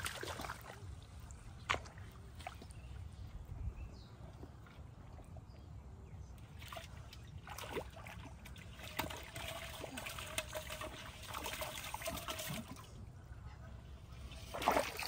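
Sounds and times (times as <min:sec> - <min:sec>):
muddy water sloshing and splashing: 0:00.0 - 0:03.6, 0:06.3 - 0:13.1, 0:14.1 - 0:15.0.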